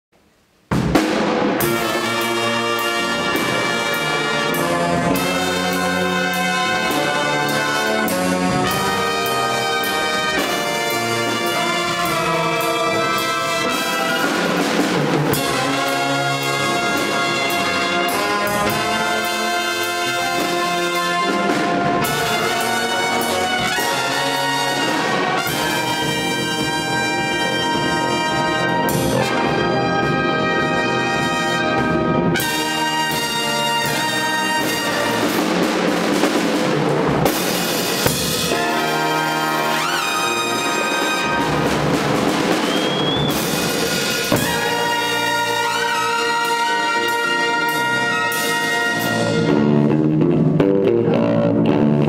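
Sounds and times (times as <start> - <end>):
drum kit hits: 0.7 - 50.7
saxophones and trumpets riff: 0.7 - 52.0
horns holding chords: 1.6 - 36.2, 37.0 - 52.0
electric guitar: 49.1 - 52.0.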